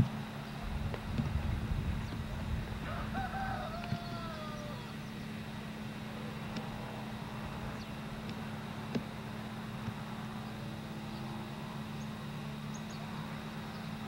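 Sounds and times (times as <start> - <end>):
steady low hum: 0.0 - 14.0
rooster crowing: 2.8 - 5.0.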